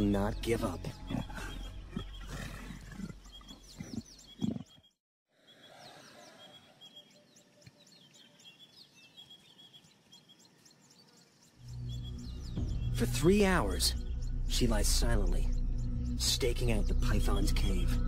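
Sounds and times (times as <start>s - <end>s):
birds chirping: 0.0s - 18.0s
leopard growling: 0.9s - 4.9s.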